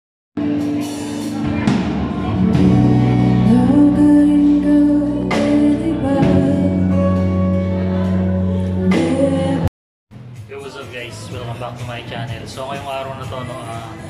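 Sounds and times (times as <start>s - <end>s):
live band playing: 0.4s - 14.0s
women singing: 3.3s - 9.7s.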